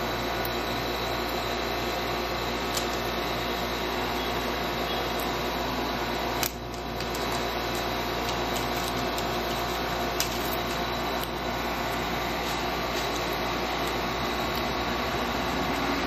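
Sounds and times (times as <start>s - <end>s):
steady mechanical hum: 0.0s - 16.0s.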